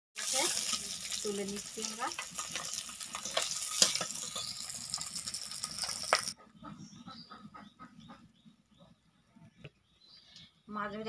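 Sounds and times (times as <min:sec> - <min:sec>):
metal spatula clinking and scraping: 0:00.2 - 0:06.3
fish sizzling in hot oil: 0:00.2 - 0:06.4.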